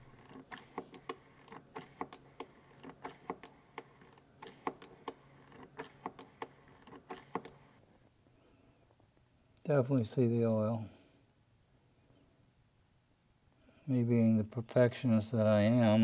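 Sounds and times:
hand pump clicking: 0.0s - 7.6s.

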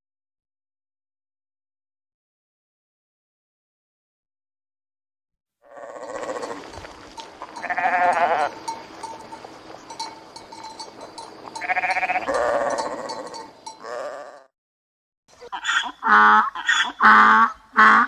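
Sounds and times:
sheep bleating: 5.6s - 6.8s, 7.4s - 8.6s, 11.5s - 14.5s.

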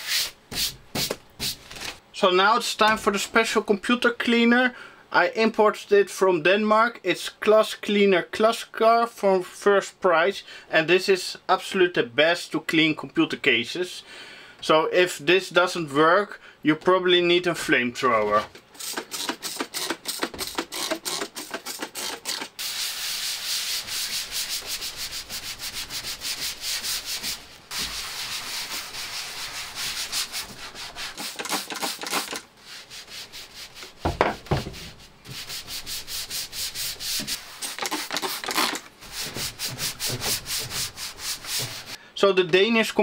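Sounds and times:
hand wiping metal panel: 22.6s - 42.0s
spray bottle spraying: 31.1s - 32.4s, 35.3s - 40.2s.

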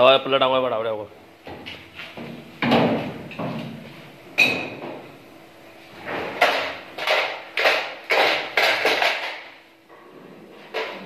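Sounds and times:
sharp knocks on sheet steel: 1.5s - 3.6s.

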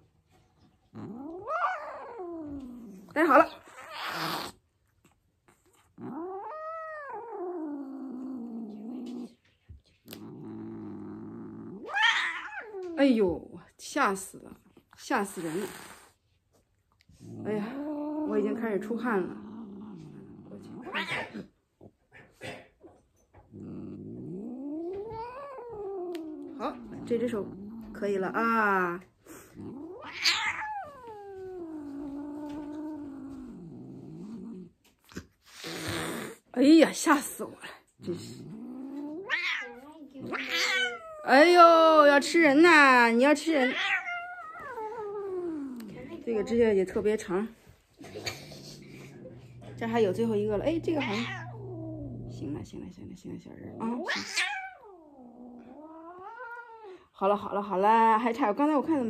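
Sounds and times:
cat moaning low: 0.9s - 4.5s, 23.5s - 28.0s, 29.5s - 34.7s, 43.7s - 46.2s, 48.0s - 57.1s
cat yowling: 1.1s - 2.8s, 11.8s - 13.0s, 29.8s - 32.7s, 39.2s - 41.5s, 43.6s - 45.8s, 50.6s - 52.4s, 54.0s - 57.0s.

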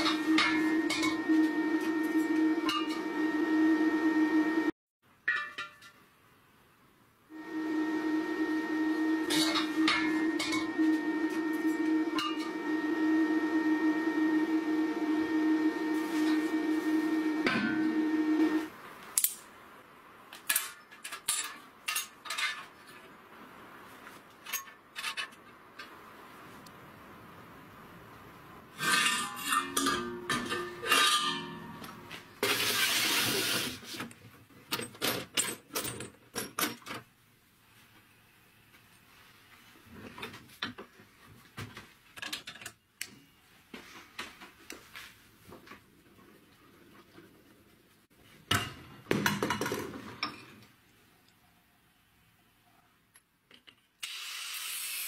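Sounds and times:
loud steady hum: 0.0s - 4.7s, 7.3s - 18.7s
steel plates clinking: 28.8s - 31.9s.

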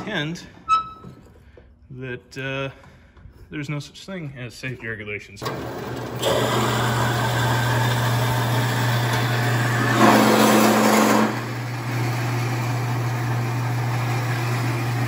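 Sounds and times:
bandsaw cutting metal: 5.4s - 15.0s.

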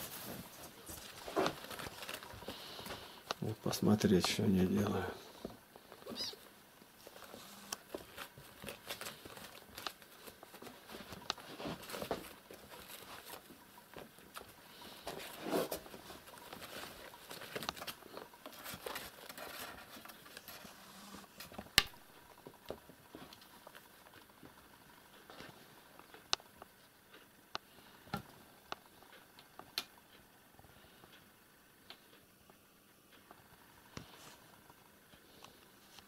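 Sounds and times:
patter of small paws: 0.0s - 4.5s, 5.2s - 21.6s.

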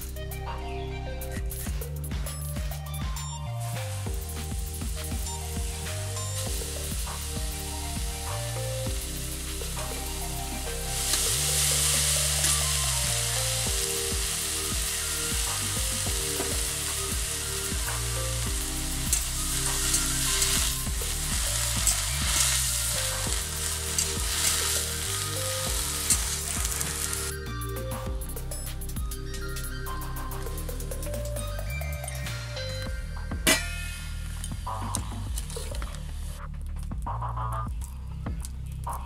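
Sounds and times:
leaves sizzling in frying pan: 3.6s - 27.4s.

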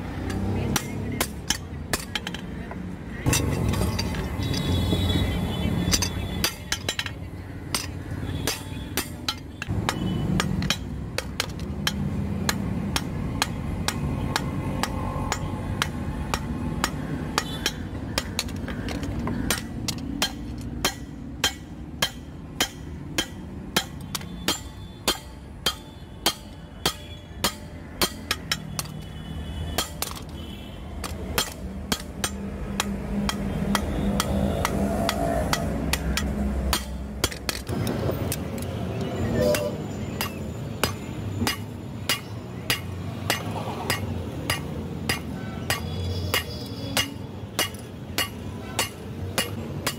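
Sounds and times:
hammer striking hot metal on anvil: 19.5s - 28.7s, 31.4s - 37.4s, 39.4s - 49.9s.

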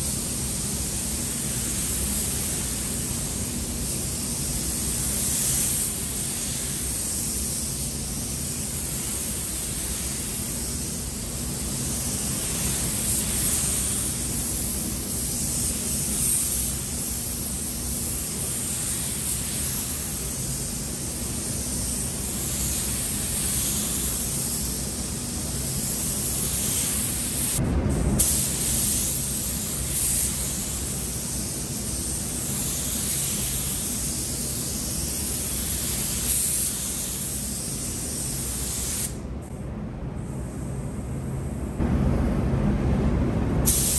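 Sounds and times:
spray gun hissing: 0.0s - 27.6s, 28.2s - 39.2s, 43.7s - 43.9s
low rumble: 27.6s - 28.5s, 41.8s - 43.7s.

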